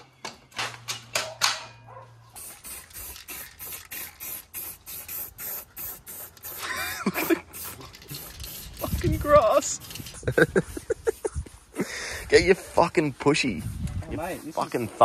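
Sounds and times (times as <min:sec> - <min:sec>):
spray-paint can hissing bursts: 0:02.3 - 0:11.3.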